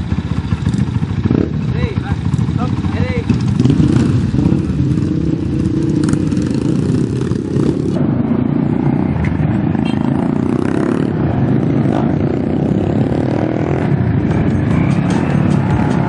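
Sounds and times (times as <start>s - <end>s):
dirt bike engines droning: 0.0s - 16.0s.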